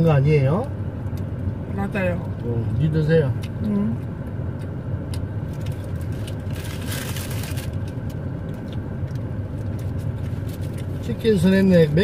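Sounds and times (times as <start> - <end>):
car idling: 0.0 - 12.0
paper wrapper crinkling: 5.6 - 8.1.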